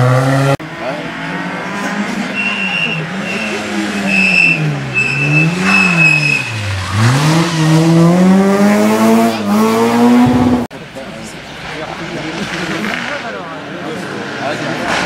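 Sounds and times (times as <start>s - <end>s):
rally car engine revving: 0.0s - 10.7s.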